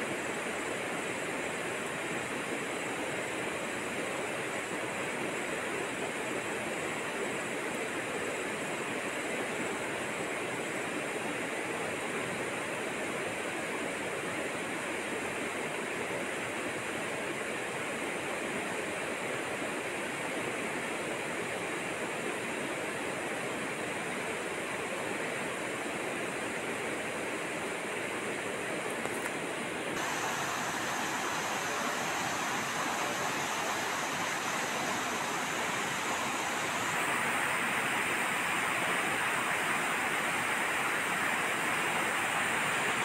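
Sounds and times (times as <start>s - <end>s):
steady rushing noise: 27.0s - 43.0s.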